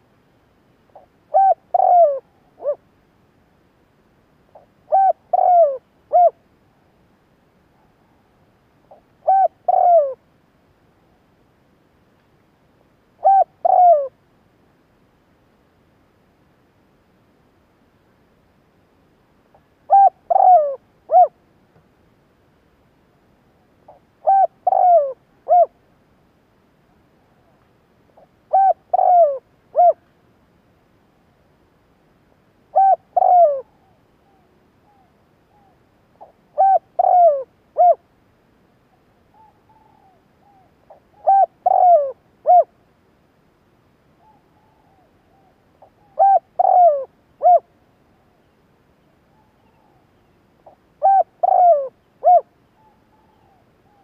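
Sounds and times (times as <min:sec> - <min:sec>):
dove cooing: 0:00.9 - 0:02.8, 0:04.5 - 0:06.4, 0:08.9 - 0:10.2, 0:13.2 - 0:14.2, 0:19.9 - 0:21.4, 0:23.9 - 0:25.8, 0:28.2 - 0:30.0, 0:32.7 - 0:38.0, 0:39.3 - 0:42.7, 0:44.2 - 0:47.7, 0:50.6 - 0:54.0.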